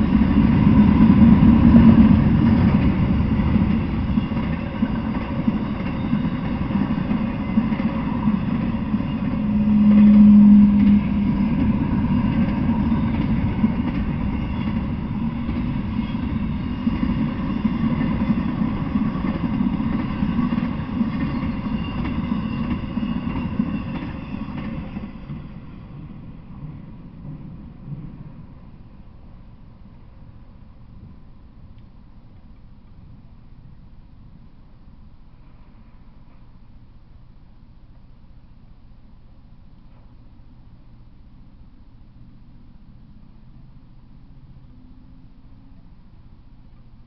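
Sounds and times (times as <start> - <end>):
steady low tone: 0.0 - 16.7, 25.4 - 47.0
freight train wheels rumbling: 0.0 - 36.7.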